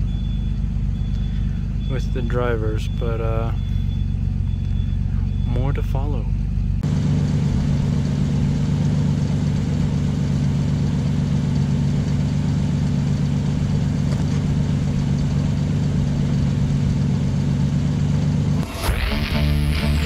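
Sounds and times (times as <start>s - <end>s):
pickup engine idling: 0.0s - 20.0s.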